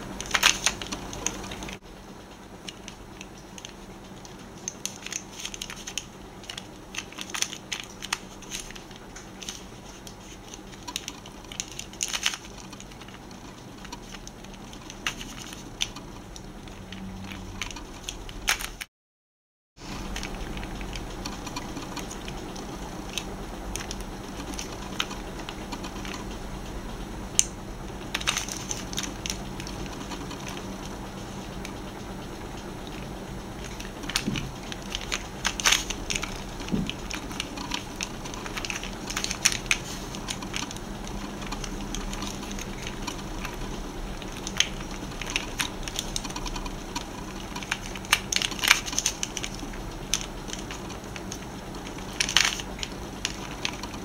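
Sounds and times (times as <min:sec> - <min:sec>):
plastic puzzle clicking: 0:00.1 - 0:01.8, 0:02.7 - 0:18.9, 0:27.3 - 0:30.7, 0:32.8 - 0:54.0.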